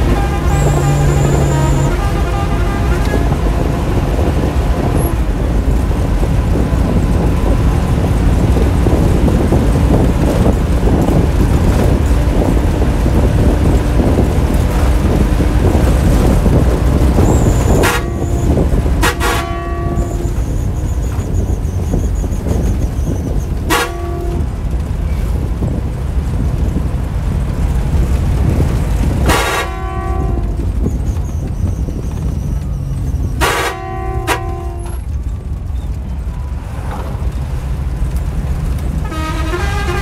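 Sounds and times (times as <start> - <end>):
bus horn: 0.0 - 22.8, 23.6 - 24.8, 29.0 - 31.2, 31.9 - 35.2, 38.9 - 40.0
bus diesel engine running: 0.0 - 40.0.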